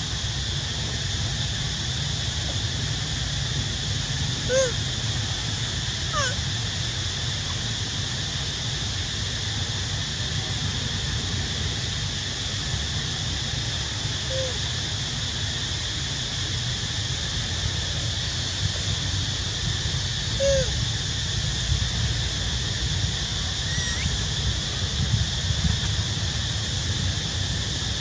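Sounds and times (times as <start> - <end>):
constant high hiss: 0.0 - 28.0
brief falling squeak: 23.7 - 24.1.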